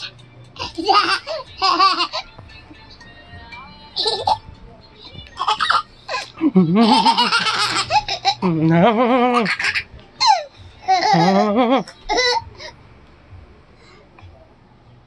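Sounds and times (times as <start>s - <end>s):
toddler laughing: 5.4s - 12.7s.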